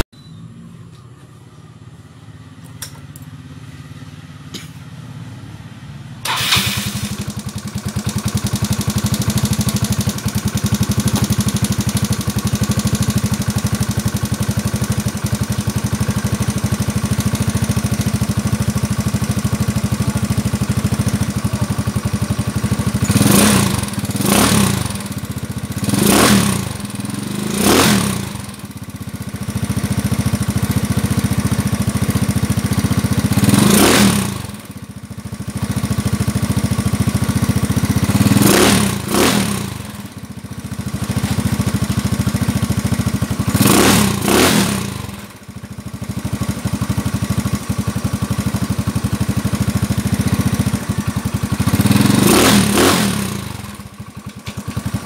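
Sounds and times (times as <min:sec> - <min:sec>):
scooter engine idling and revving: 0:01.8 - 0:55.0.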